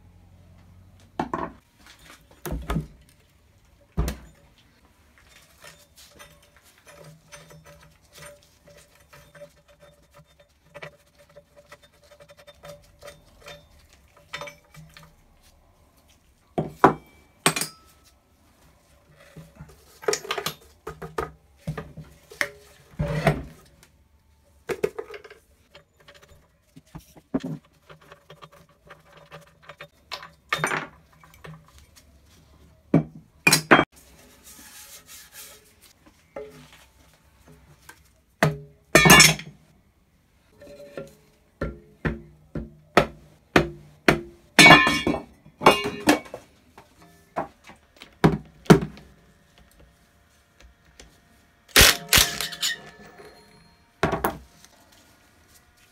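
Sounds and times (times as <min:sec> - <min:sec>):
metal parts clinking on wooden bench: 0:51.8 - 0:54.4.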